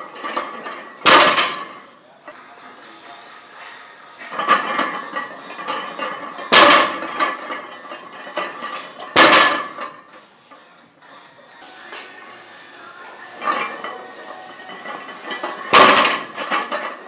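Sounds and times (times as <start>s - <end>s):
barbell plates clanking: 0.1s - 1.8s, 4.2s - 10.1s, 11.7s - 17.0s.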